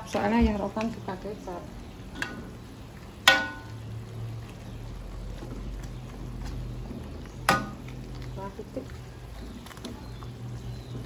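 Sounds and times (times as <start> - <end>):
metal ladle knocking on wok: 3.2 - 3.8.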